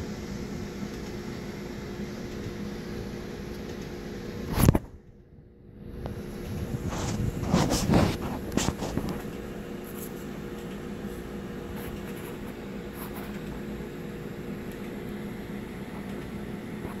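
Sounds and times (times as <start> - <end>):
room hum: 0.0 - 17.0.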